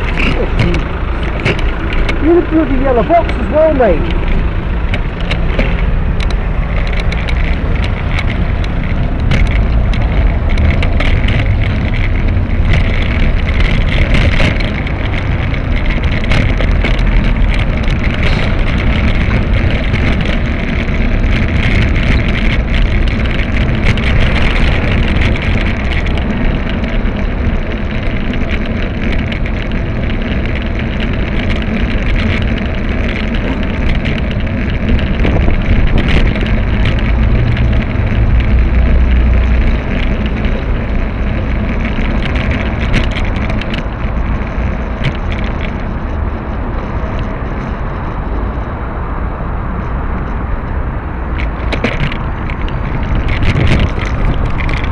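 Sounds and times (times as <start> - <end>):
small clicks and rattles: 0.0 - 48.6, 51.2 - 54.9
car noise: 0.0 - 54.9
road rumble: 0.0 - 54.9
wind noise: 0.0 - 54.9.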